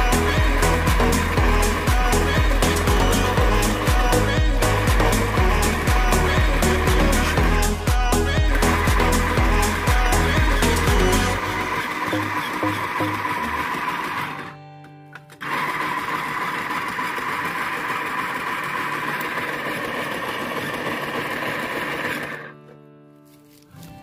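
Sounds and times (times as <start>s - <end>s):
food processor motor running: 0.0s - 7.6s, 8.2s - 14.6s, 15.4s - 22.6s
slicing disc cutting root: 8.6s - 14.6s, 15.2s - 22.7s.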